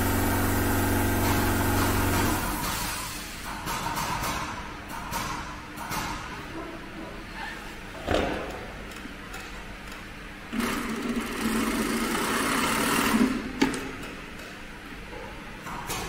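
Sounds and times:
sewing machine running: 0.0 - 2.9, 10.5 - 13.5.

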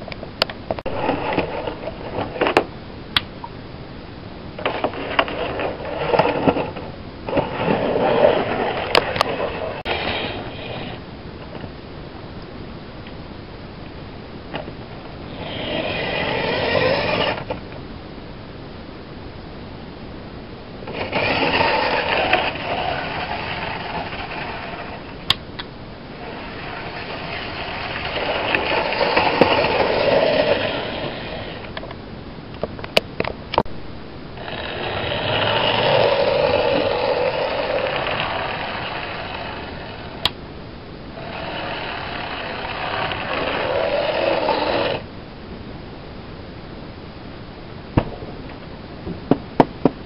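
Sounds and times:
model trains whirring on rails: 4.6 - 11.0, 15.3 - 17.5, 20.9 - 25.3, 26.1 - 31.8, 34.4 - 40.3, 41.2 - 45.0.

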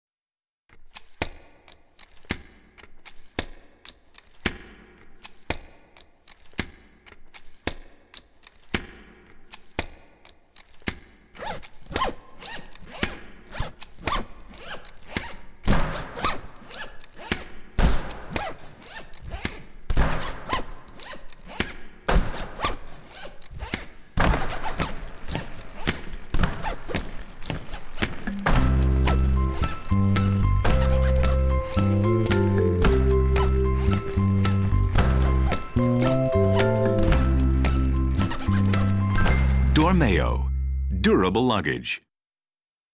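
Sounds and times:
suitcase handles clacking: 10.6 - 35.8.

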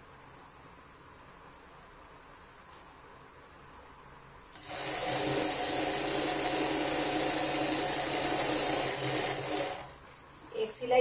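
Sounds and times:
industrial sewing machine running: 4.6 - 10.0.

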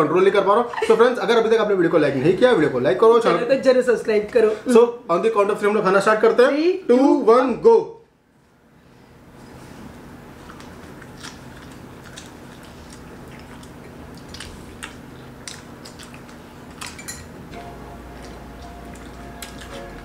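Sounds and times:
clinks against plates and bowls: 16.9 - 17.4
quiet background music: 17.5 - 20.0.

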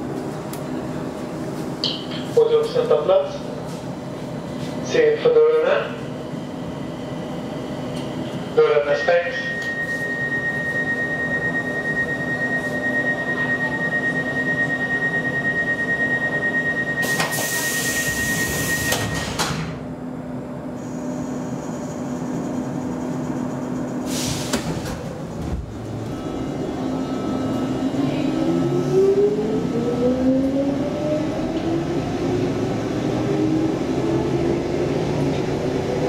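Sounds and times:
steady high tone: 8.6 - 17.1, 26.1 - 31.5
air hiss of doors closing: 17.0 - 19.7, 24.1 - 25.0.

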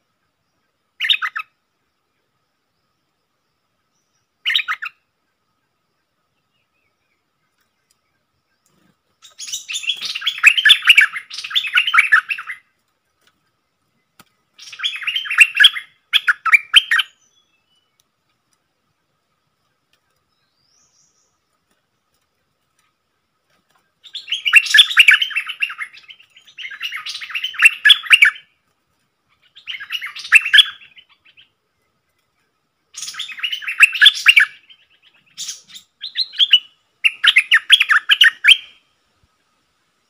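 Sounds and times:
bird singing rapid notes: 0.6 - 1.6, 3.8 - 5.1, 6.4 - 18.0, 23.7 - 28.5, 29.3 - 32.2, 32.9 - 38.9.

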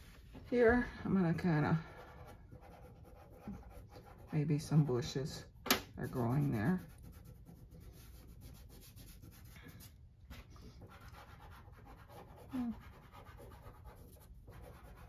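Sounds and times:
pastel scratching on paper: 1.5 - 4.8, 6.0 - 15.0.

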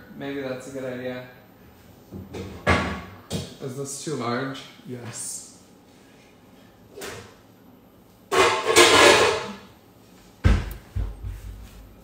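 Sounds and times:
cookware clattering: 8.3 - 9.6.

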